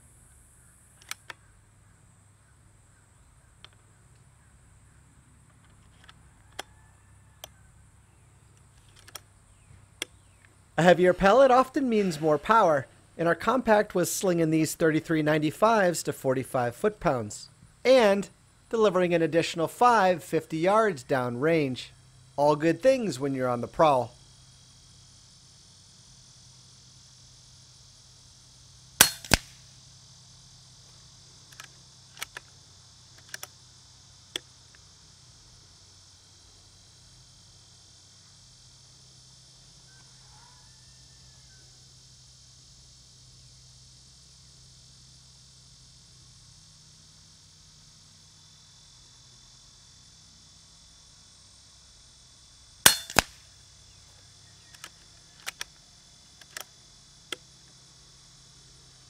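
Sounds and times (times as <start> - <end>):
insects hissing: 0.0 - 59.0
rifle action clicks: 1.0 - 1.4, 52.9 - 53.4, 54.7 - 55.8, 56.4 - 56.7
air rifle shot cracks: 29.0 - 29.7, 52.9 - 53.5.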